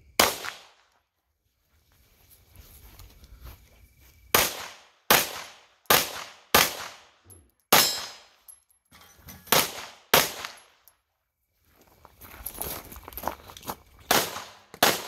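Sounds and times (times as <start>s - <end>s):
pistol shots with echo: 0.2s - 0.9s, 4.3s - 8.4s, 9.5s - 10.8s, 14.1s - 15.0s.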